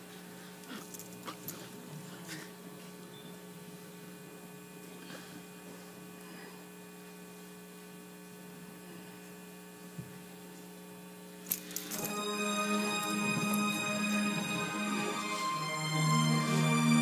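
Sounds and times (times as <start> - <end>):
electrical mains hum: 0.0 - 17.0
music: 11.8 - 17.0.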